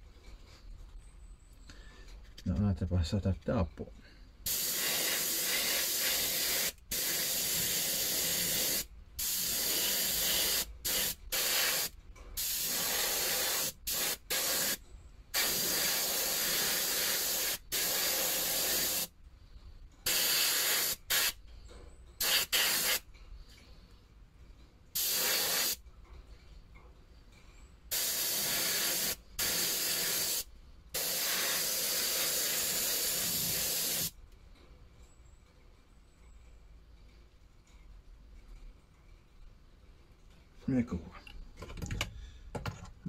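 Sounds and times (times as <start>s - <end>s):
airbrush spraying hissing bursts: 4.4s - 19.1s, 20.0s - 21.4s, 22.2s - 23.0s, 25.0s - 25.8s, 27.9s - 34.1s.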